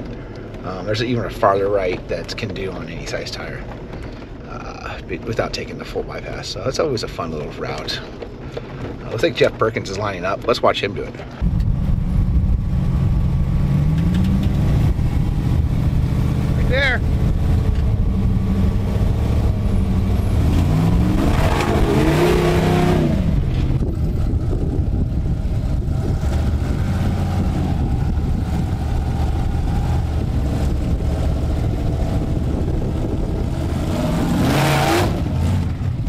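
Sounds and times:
engine revving under load: 0:11.4 - 0:36.0.

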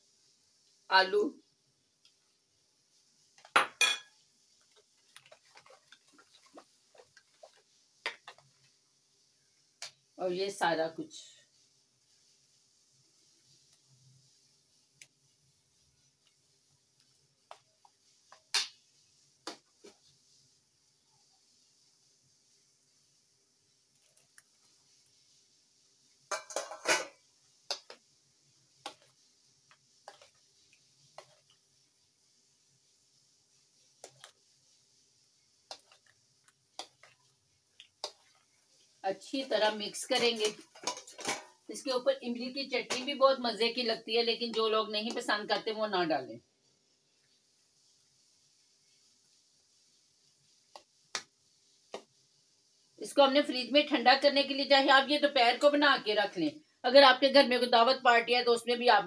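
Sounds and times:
spoon stirring taps: 0:03.3 - 0:08.8, 0:16.1 - 0:20.2, 0:26.1 - 0:28.1, 0:28.7 - 0:32.2, 0:32.8 - 0:41.6, 0:42.4 - 0:45.8, 0:50.6 - 0:52.2
colander clanking against metal bowl: 0:26.3 - 0:27.2, 0:40.0 - 0:41.6, 0:42.8 - 0:43.2.

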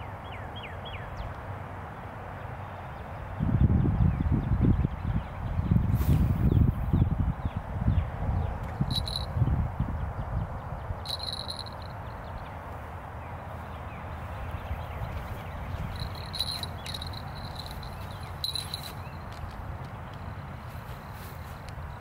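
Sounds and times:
insects chirping trills: 0:08.9 - 0:09.3, 0:11.0 - 0:12.0, 0:15.7 - 0:19.4
thin steady tone: 0:08.9 - 0:09.4, 0:11.1 - 0:12.0, 0:15.9 - 0:19.2.

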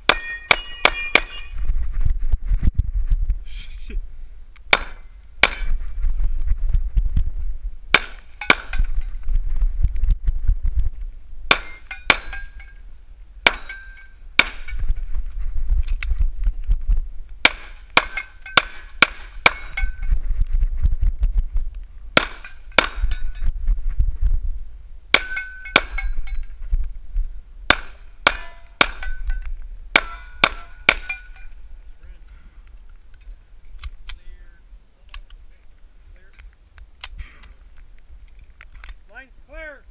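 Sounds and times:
constant low rumble: 0:00.0 - 0:39.9
pistol shots: 0:04.7 - 0:05.7, 0:07.9 - 0:08.9, 0:13.4 - 0:14.8, 0:17.4 - 0:20.0, 0:22.2 - 0:23.2, 0:27.7 - 0:29.4.

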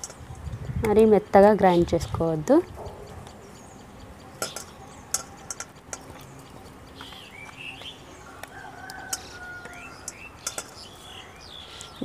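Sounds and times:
steel jar clicking and tapping: 0:00.0 - 0:00.3, 0:04.3 - 0:11.0
small birds chirping: 0:00.0 - 0:12.0.

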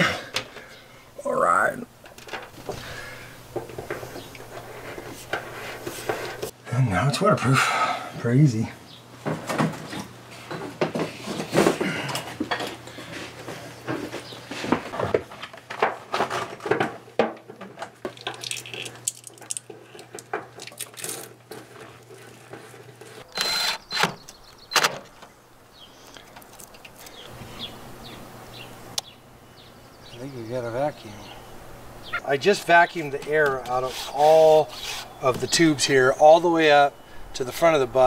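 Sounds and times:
cable fittings clicking and rattling: 0:18.1 - 0:21.4.

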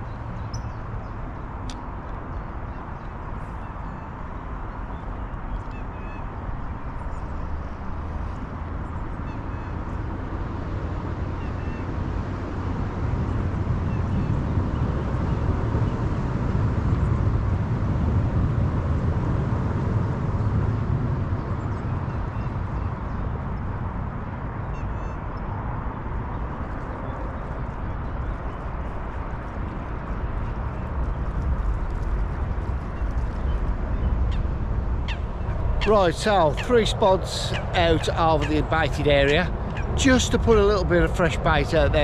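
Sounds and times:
wind rumbling on microphone: 0:00.0 - 0:42.0
birds chirping: 0:32.9 - 0:42.0.

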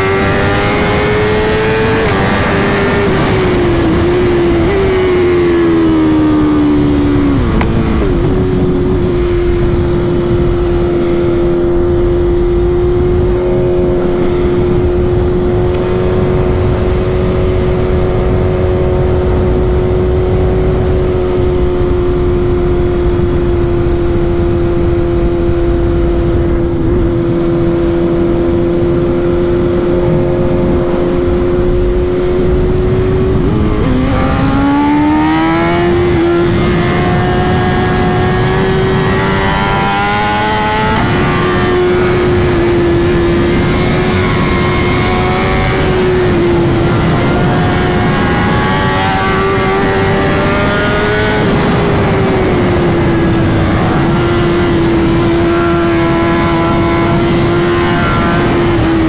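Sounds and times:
motorcycle engine at high revs: 0:00.0 - 0:59.0
wind rushing over microphone: 0:00.0 - 0:59.0.

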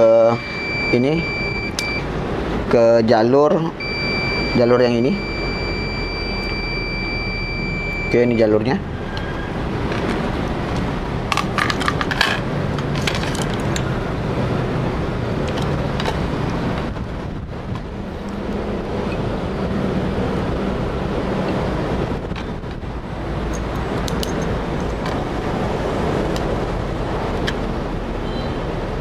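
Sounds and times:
steady rushing noise: 0:00.4 - 0:29.0
motherboard clicking and rattling: 0:09.8 - 0:14.0.

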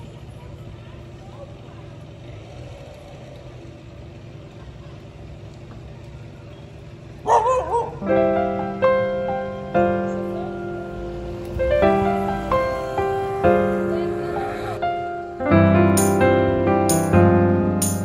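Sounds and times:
low outdoor background noise: 0:00.0 - 0:18.0
wavering yelp: 0:07.2 - 0:08.9
solo piano music: 0:08.0 - 0:18.0.

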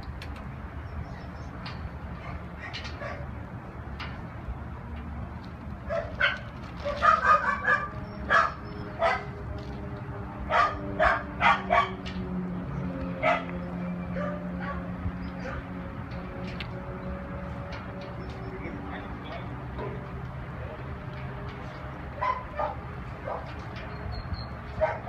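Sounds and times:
dog barking: 0:05.9 - 0:09.2, 0:10.5 - 0:12.0, 0:13.2 - 0:13.5, 0:22.2 - 0:23.5, 0:24.8 - 0:25.0.

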